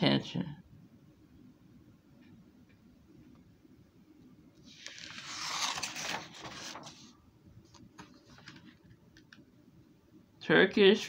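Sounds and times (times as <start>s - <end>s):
paper page turning: 4.6s - 9.0s.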